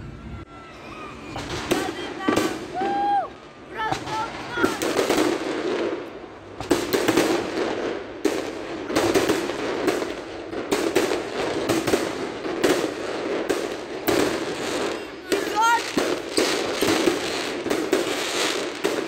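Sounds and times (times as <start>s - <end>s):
firework shells bursting: 4.0s - 19.0s.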